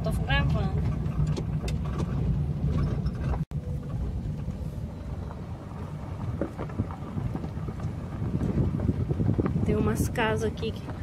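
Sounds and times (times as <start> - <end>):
rumbling road noise: 0.0 - 11.0.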